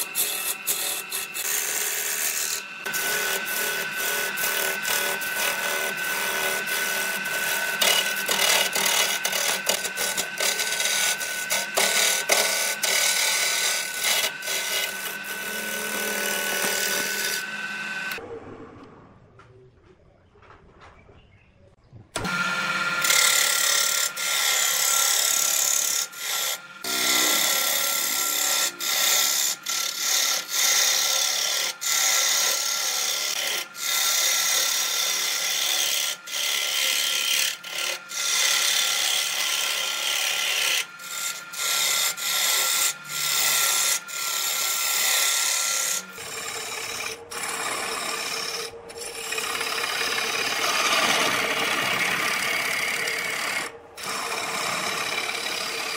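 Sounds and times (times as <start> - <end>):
lathe gouge scraping wood: 0.0 - 18.2, 22.2 - 55.9
low hum: 18.1 - 22.2.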